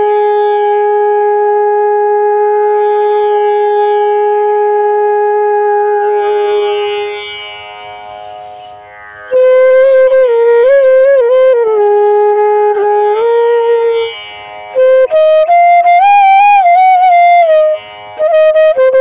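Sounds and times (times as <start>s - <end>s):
flute holding low note: 0.0s - 19.0s
higher flute note: 5.3s - 8.4s, 9.2s - 19.0s.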